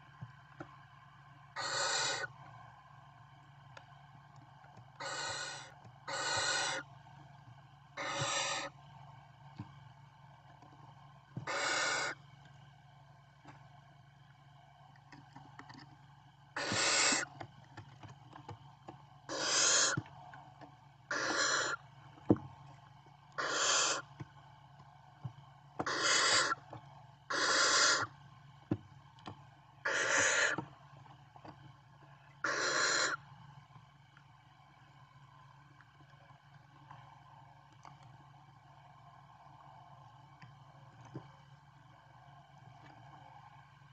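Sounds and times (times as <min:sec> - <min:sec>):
owl chicks hissing: 0:01.6 - 0:02.3, 0:05.0 - 0:06.9, 0:08.0 - 0:08.7, 0:11.4 - 0:12.2, 0:16.6 - 0:17.3, 0:19.3 - 0:20.0, 0:21.1 - 0:21.8, 0:23.4 - 0:24.1, 0:25.8 - 0:26.7, 0:27.3 - 0:28.1, 0:29.8 - 0:30.6, 0:32.4 - 0:33.2.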